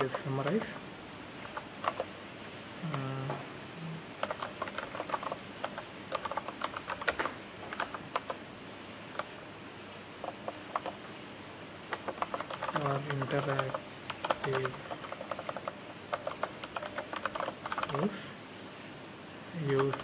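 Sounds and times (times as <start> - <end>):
typing on computer keyboard: 0.0 - 0.8, 1.4 - 2.2, 2.8 - 3.3, 4.2 - 8.4, 9.1 - 9.4, 10.2 - 11.1, 11.9 - 18.2, 19.6 - 20.0.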